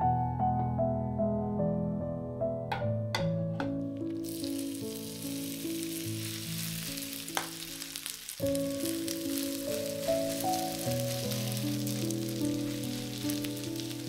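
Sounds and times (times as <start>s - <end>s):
food sizzling in frying pan: 4.0s - 14.0s.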